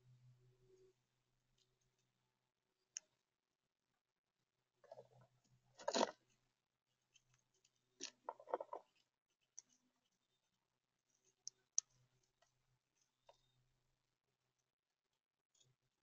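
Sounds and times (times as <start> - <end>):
squirrel gnawing acorn shell: 5.8 - 6.4, 7.2 - 10.3.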